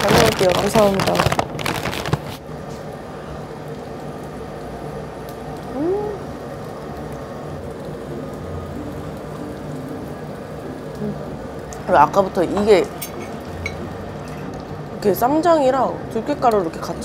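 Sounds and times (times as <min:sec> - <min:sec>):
woman humming mmm: 0:05.7 - 0:06.3, 0:11.0 - 0:11.4.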